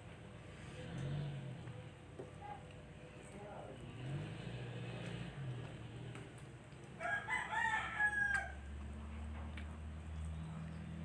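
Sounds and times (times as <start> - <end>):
rooster crowing: 7.0 - 8.8.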